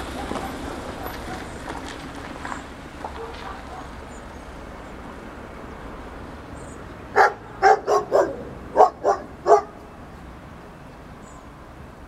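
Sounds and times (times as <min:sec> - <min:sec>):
dog barking: 0:00.1 - 0:01.4, 0:03.1 - 0:04.0, 0:07.1 - 0:09.8.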